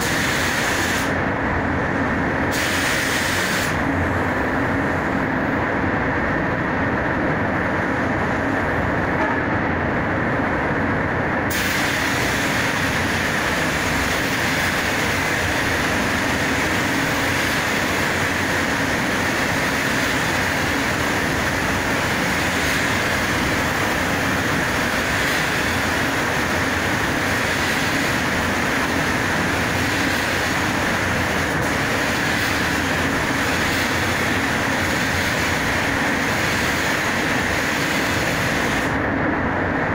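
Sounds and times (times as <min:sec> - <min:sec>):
spray gun air hiss: 0:00.0 - 0:01.2, 0:02.5 - 0:03.9, 0:11.5 - 0:39.0
ventilation fans rushing: 0:00.0 - 0:39.9.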